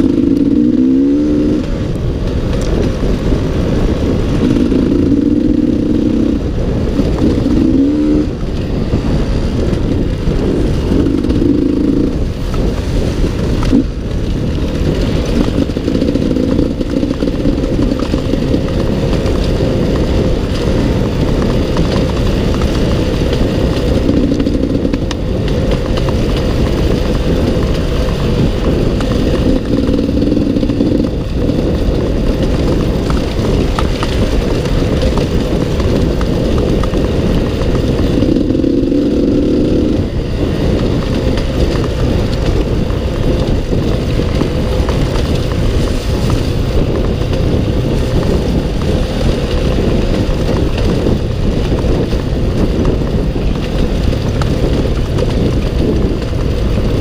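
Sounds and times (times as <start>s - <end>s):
dirt bike engine revving: 0.0s - 2.0s, 2.7s - 52.0s.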